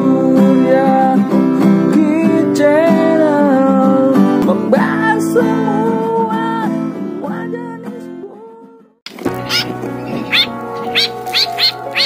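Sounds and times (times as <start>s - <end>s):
guitar intro music: 9.1s - 12.0s.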